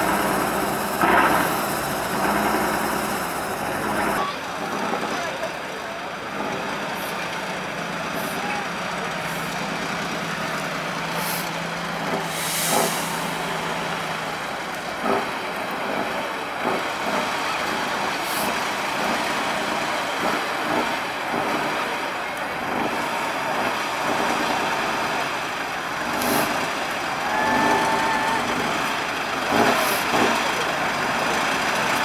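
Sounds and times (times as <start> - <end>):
truck diesel engine under load: 0.0 - 32.0
short hisses: 11.2 - 11.5, 12.3 - 13.4.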